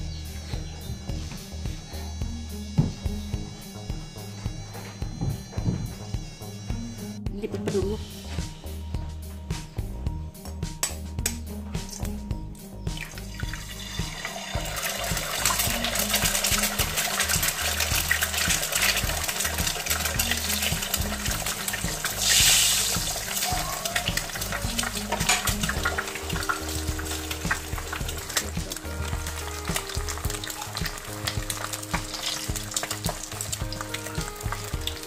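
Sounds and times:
music with bass beat: 0.0s - 35.0s
egg sizzling in oil: 13.0s - 35.0s.

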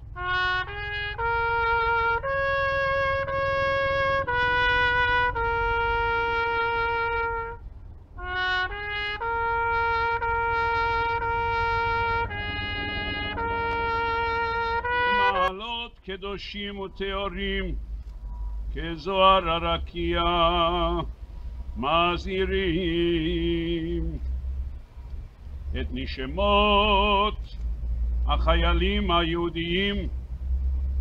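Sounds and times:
solo trumpet melody: 0.0s - 15.7s.

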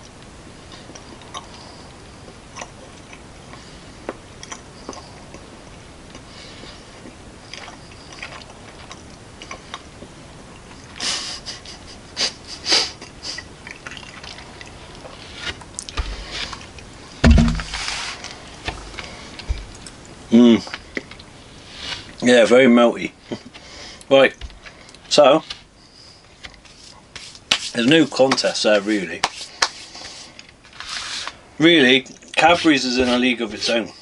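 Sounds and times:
person chewing chocolate: 0.6s - 11.0s, 12.9s - 21.4s
camera bump and handling noise: 17.2s - 17.9s.

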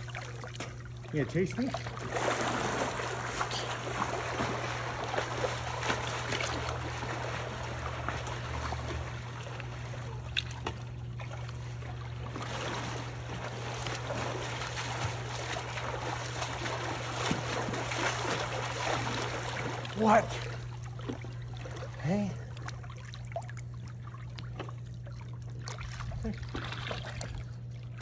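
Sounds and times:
pool water splashing: 0.0s - 28.0s
steady low hum: 0.0s - 28.0s.

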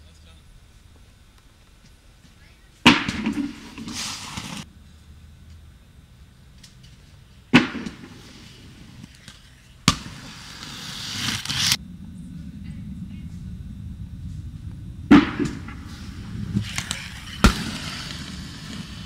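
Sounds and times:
skate wheels rolling and scraping: 2.2s - 4.7s, 7.6s - 11.8s, 14.4s - 19.0s.

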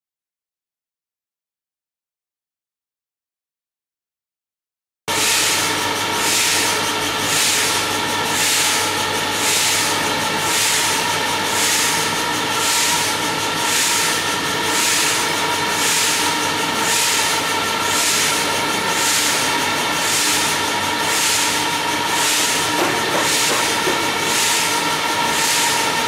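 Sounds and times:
steady machine noise with tones: 5.1s - 26.0s.

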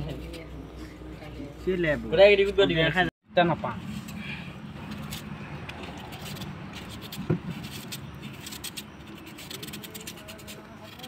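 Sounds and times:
knife scraping mango: 3.8s - 11.0s.

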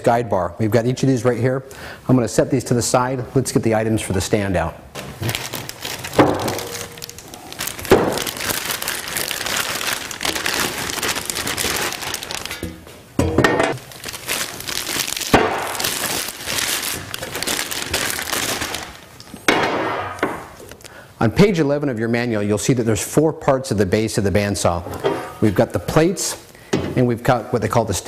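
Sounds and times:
plastic bags crinkling: 5.0s - 12.8s, 13.7s - 19.4s.

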